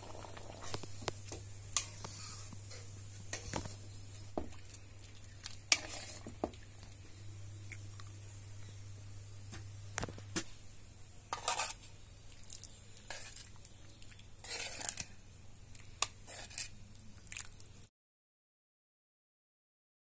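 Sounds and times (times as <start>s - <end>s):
faint low hum: 0.0s - 17.9s
utensils scraping: 5.2s - 6.3s, 11.3s - 11.9s, 14.4s - 15.1s, 16.0s - 16.8s.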